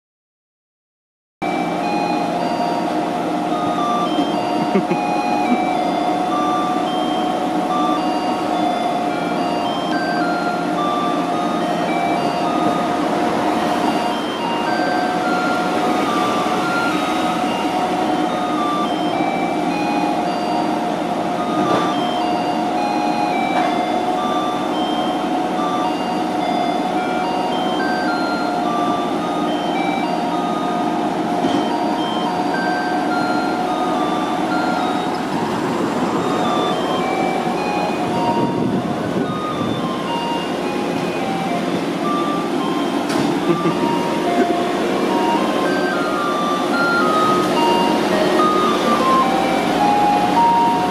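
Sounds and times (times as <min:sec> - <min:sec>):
electronic chime melody on loudspeaker: 0:01.4 - 0:50.9
truck engine running low: 0:01.4 - 0:50.9.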